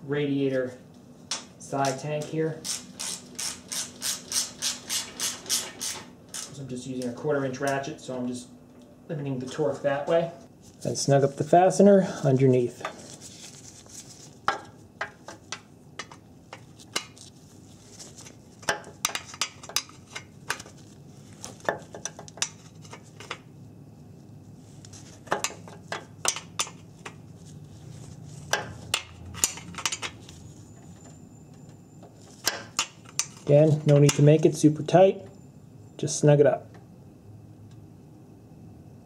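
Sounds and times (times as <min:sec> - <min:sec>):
ratchet clicking: 0:02.6 - 0:06.5.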